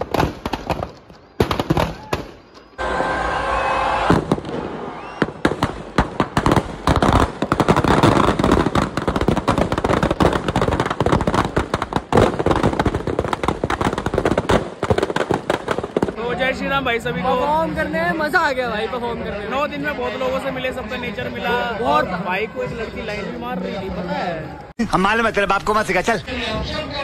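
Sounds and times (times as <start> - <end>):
firecrackers banging and crackling: 0.0 - 3.2, 4.0 - 16.9.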